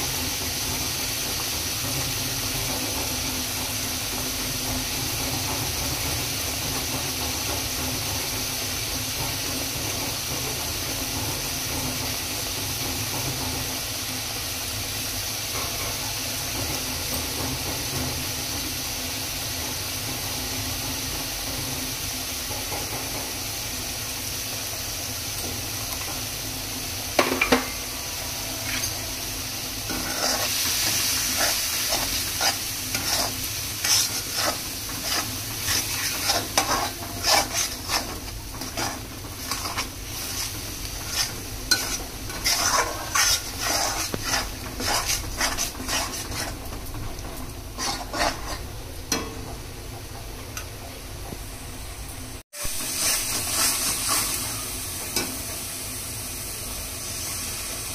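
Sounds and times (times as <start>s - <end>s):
food sizzling in a pan: 0.0s - 49.7s, 51.8s - 57.9s
utensil stirring and scraping: 29.8s - 48.7s, 52.6s - 54.6s
utensil clanking against pan: 29.8s - 49.6s.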